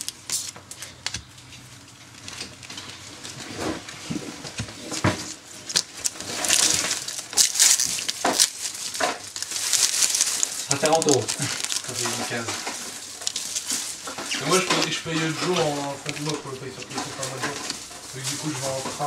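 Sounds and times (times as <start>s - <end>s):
foil wrapper crinkling: 0.0s - 19.0s
cards tapping and clicking: 4.4s - 18.0s.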